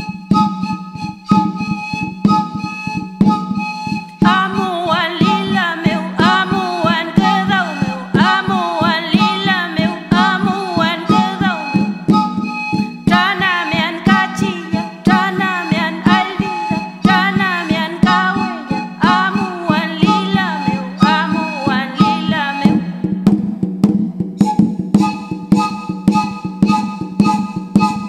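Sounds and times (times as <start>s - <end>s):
percussion beat: 0.0s - 28.0s
person singing: 4.2s - 11.9s, 13.1s - 22.9s.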